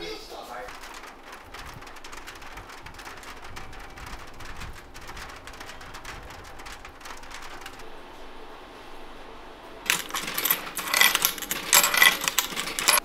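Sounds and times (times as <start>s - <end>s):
dense irregular patter: 0.0s - 7.9s.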